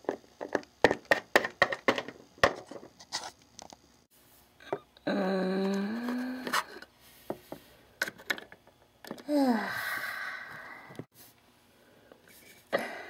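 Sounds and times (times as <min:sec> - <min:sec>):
person sighing: 0:05.0 - 0:06.8, 0:09.2 - 0:11.0.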